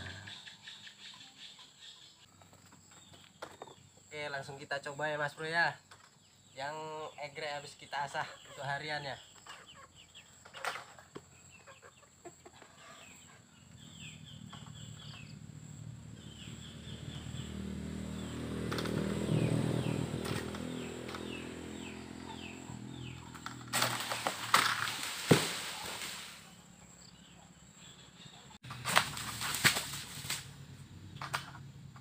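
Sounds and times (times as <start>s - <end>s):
bird chirps: 0.0s - 25.1s, 25.7s - 29.6s
frond crashing through leaves: 23.6s - 26.6s, 28.7s - 30.6s
sickle cutting palm frond: 23.6s - 26.6s, 28.6s - 30.6s.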